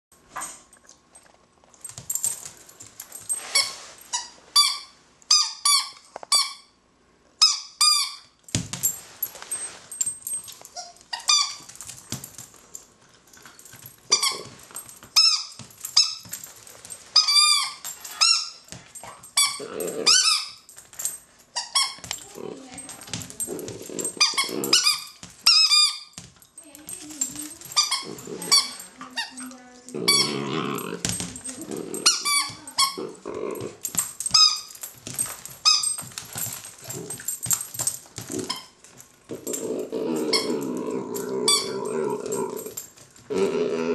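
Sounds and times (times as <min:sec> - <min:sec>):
squeaky toy squeaking: 0:04.1 - 0:06.7, 0:07.4 - 0:08.4.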